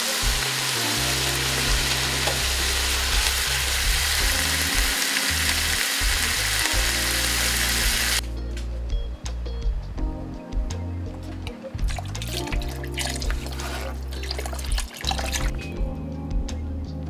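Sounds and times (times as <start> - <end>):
food sizzling in oil: 0.0 - 8.2.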